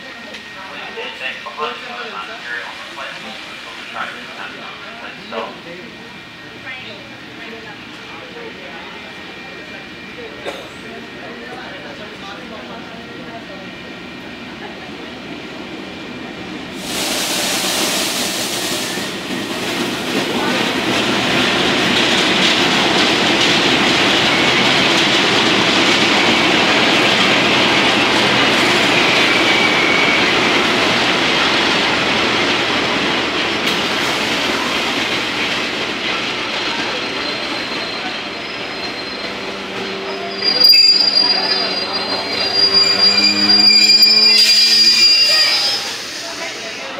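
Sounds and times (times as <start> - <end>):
train wheels rumbling on rails: 5.9 - 46.9
train wheel squeal: 22.4 - 32.6, 36.4 - 46.9.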